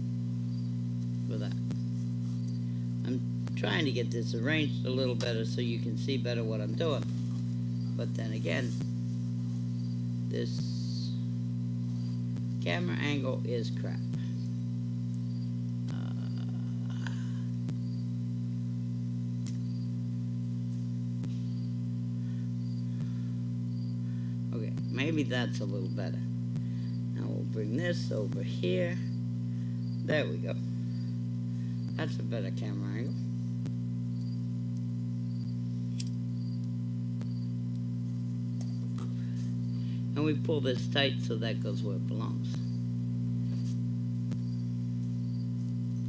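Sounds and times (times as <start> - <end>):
low electrical hum: 0.0 - 46.0
faint clicks: 19.4 - 19.7.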